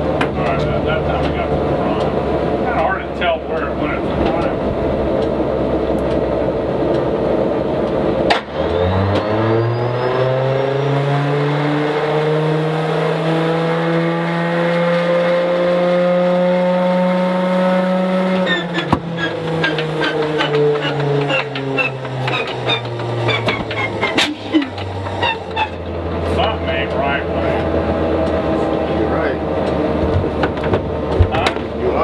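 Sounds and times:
engine turning over with clicks and pops: 0:00.0 - 0:09.7, 0:18.2 - 0:32.0
inertia starter whine: 0:17.8 - 0:32.0.

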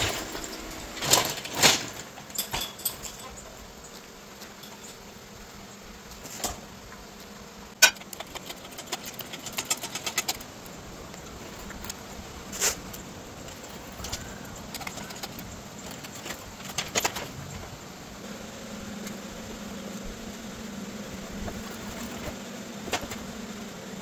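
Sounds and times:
metal clanks from engine crane: 0:00.0 - 0:03.4.

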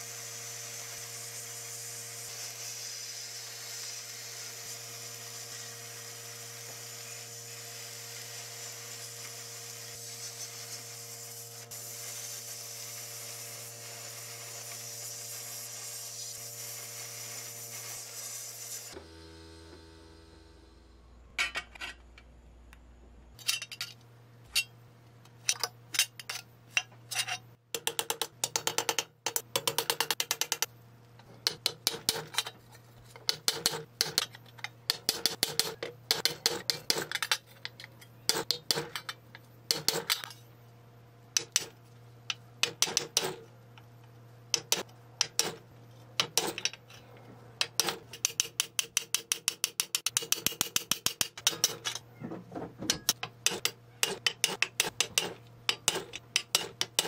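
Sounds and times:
faint low hum: 0:19.7 - 0:25.4.

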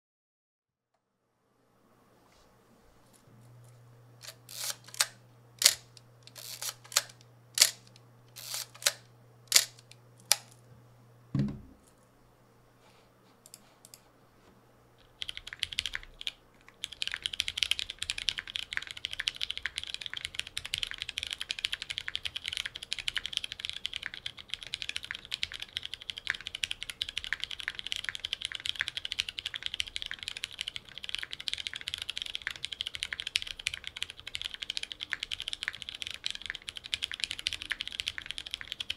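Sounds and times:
film camera clicks: 0:04.2 - 0:10.6
mechanical keyboard typing: 0:04.2 - 0:10.6, 0:15.0 - 0:38.9
camera set down thump: 0:11.4 - 0:11.8.

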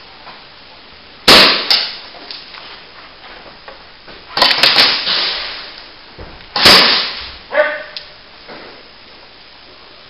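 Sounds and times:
airsoft gun shots echoing: 0:01.3 - 0:02.0, 0:04.4 - 0:05.4, 0:06.6 - 0:07.4.

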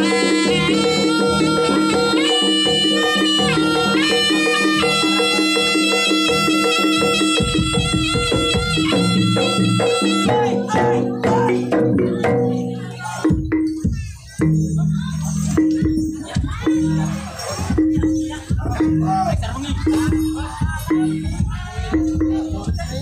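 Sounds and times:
shrill reed pipe melody: 0:00.0 - 0:11.6
gongs and drums: 0:00.0 - 0:23.0.

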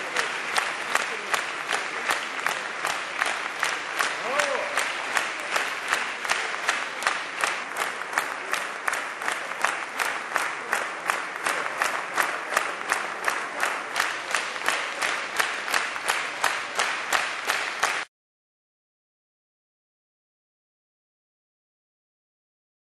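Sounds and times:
audience clapping in unison: 0:00.0 - 0:18.1.

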